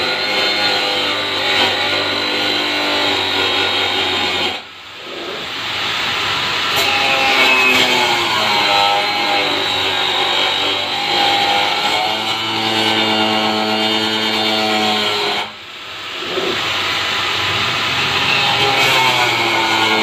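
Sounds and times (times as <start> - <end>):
electric cutter cutting plastic: 17.4 - 20.0.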